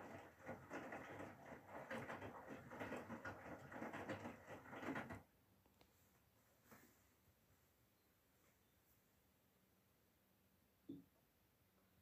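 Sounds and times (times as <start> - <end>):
washing machine drum tumbling laundry: 0.0 - 5.3.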